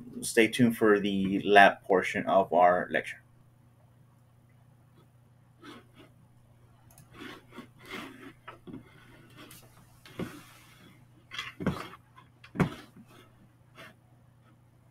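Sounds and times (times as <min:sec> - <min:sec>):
low electrical hum: 0:00.0 - 0:14.9
handling noise at a desk: 0:07.0 - 0:14.6.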